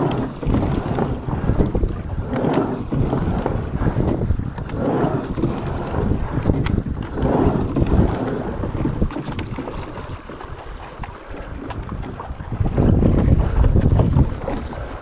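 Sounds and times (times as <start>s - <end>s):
water splashing against boat hull: 0.0s - 15.0s
wind buffeting microphone: 0.0s - 15.0s.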